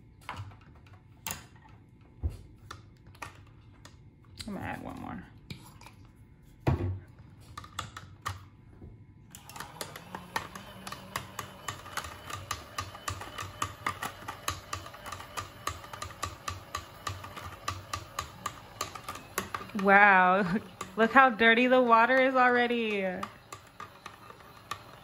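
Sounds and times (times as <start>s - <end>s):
brush washing machine humming: 9.3s - 25.0s.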